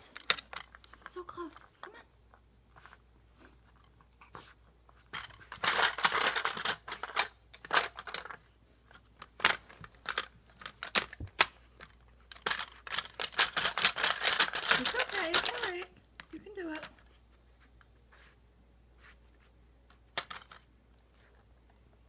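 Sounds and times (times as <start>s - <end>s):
plastic toy clicking and rattling: 0.0s - 2.0s, 5.1s - 8.4s, 9.2s - 17.0s.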